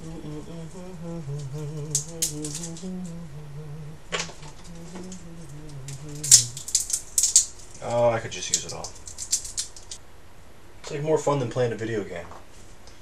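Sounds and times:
man humming: 0.0 - 7.4.

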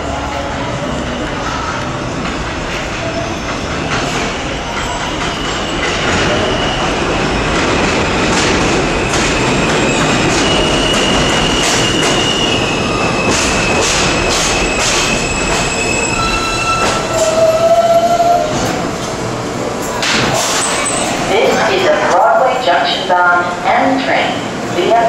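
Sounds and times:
train wheels rumbling on rails: 0.0 - 23.7
low train tone: 0.0 - 25.0.

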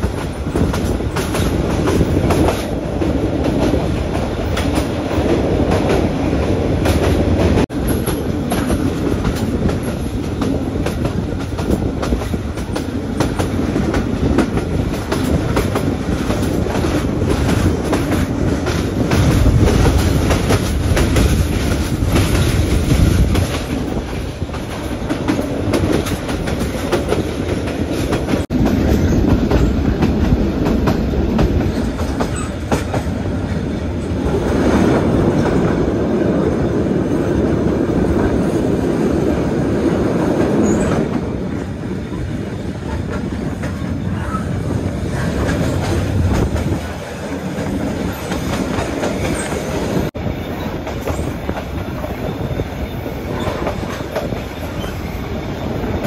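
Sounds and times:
train wheels clattering over rail joints: 0.0 - 35.8.

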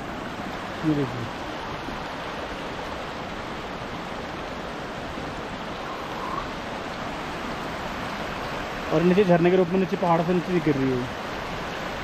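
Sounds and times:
stream rushing over rocks: 0.0 - 12.0.

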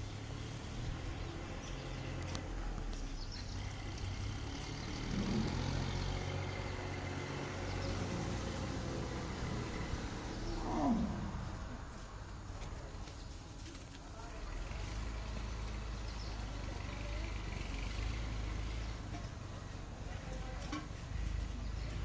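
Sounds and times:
elephant calling: 5.0 - 6.3, 9.9 - 11.8.

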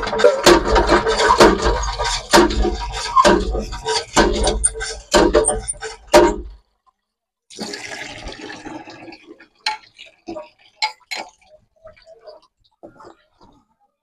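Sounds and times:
water pouring: 7.5 - 13.6
water splashing into containers: 7.5 - 13.6
steel vessels clinking: 9.7 - 12.3.

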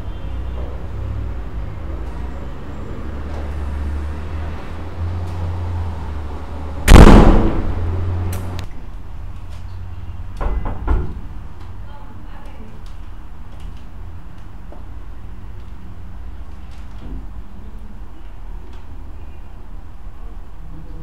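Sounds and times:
loud bang with low rumble: 6.8 - 8.2.

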